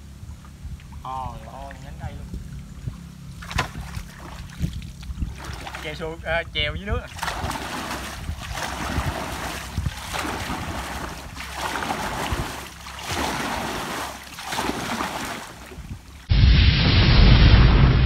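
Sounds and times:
paddle splashing through water: 2.6s - 6.0s, 7.1s - 16.3s.

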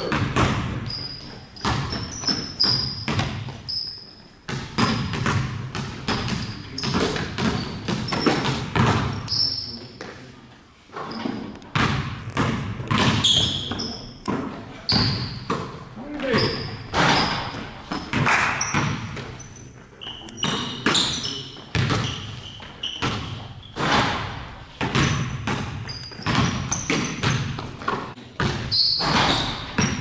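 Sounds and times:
basketballs bouncing on gym floor: 0.0s - 10.2s, 11.0s - 30.0s
short high squeaks: 0.9s - 3.1s, 3.7s - 4.2s, 9.2s - 9.9s, 19.4s - 23.8s, 28.7s - 29.9s.

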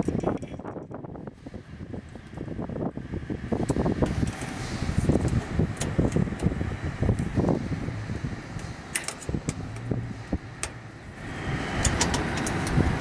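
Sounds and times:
small metallic clicks and taps: 11.8s - 12.8s.

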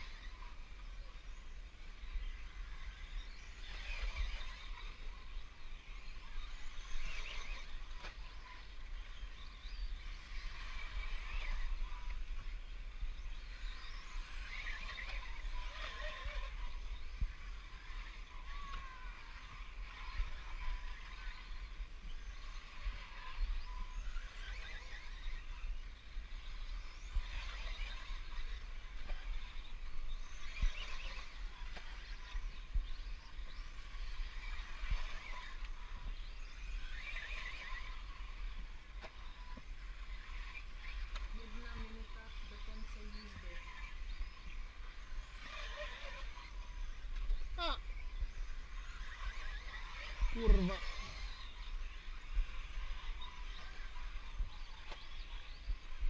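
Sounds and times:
electric toy car motors whining: 0.0s - 56.0s
steady low rumble: 0.0s - 56.0s.

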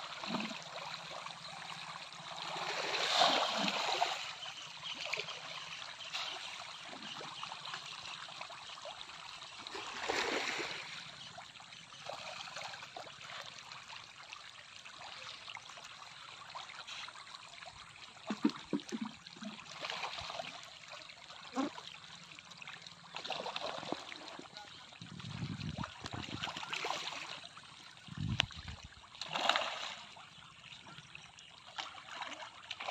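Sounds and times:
fish splashing at water surface: 2.5s - 4.3s, 9.7s - 10.9s, 29.2s - 30.1s.

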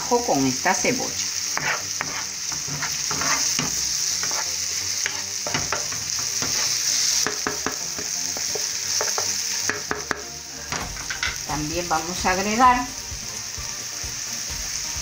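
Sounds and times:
onion sizzling in hot oil: 0.0s - 15.0s
wooden spoon stirring in a pan: 1.5s - 11.4s.

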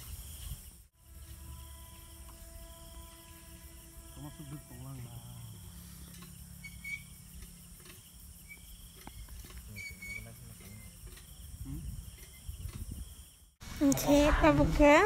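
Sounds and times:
crickets chirping: 0.0s - 15.0s
low background hum: 1.0s - 12.3s.

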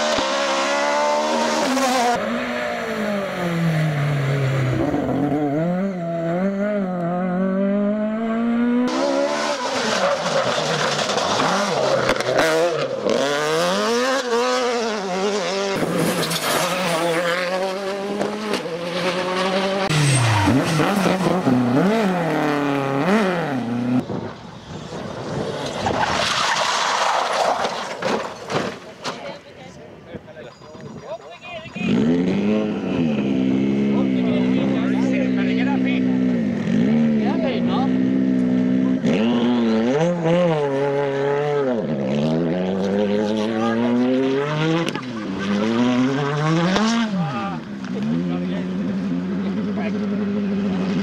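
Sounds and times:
rally car passing at speed: 0.0s - 27.9s, 31.8s - 51.0s
rally car engine revving: 0.0s - 28.8s, 31.7s - 51.0s
tyres on gravel: 9.3s - 12.7s, 15.8s - 22.6s, 25.2s - 29.6s.

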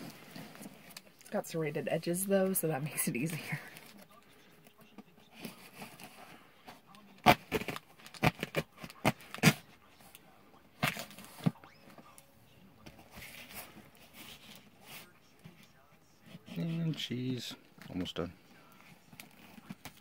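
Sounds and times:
cardboard rustling: 12.8s - 20.0s.

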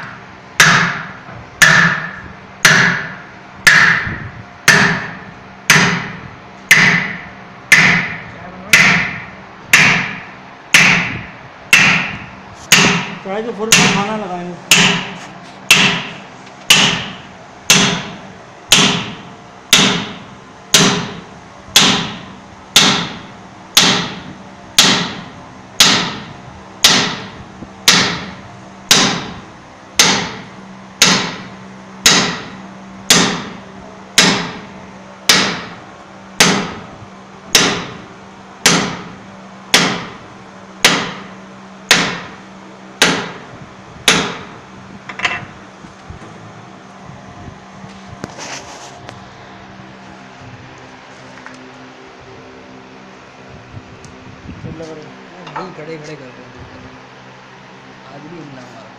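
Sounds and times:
hammer striking metal: 0.0s - 21.2s, 21.8s - 29.4s, 30.0s - 30.4s, 31.0s - 34.7s, 35.3s - 35.7s, 36.4s - 36.8s, 37.5s - 38.0s, 38.6s - 40.2s, 40.8s - 41.3s, 41.9s - 42.4s, 43.0s - 44.5s.

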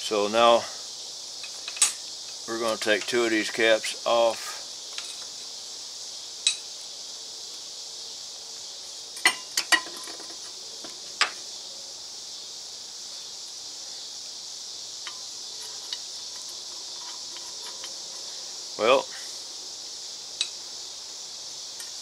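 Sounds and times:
steady high hiss: 0.0s - 22.0s
metal parts clinking: 15.1s - 18.3s.

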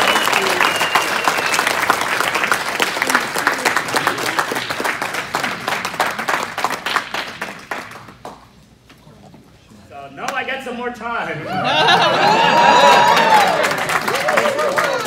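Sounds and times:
audience applauding: 0.0s - 8.4s, 11.8s - 15.0s.

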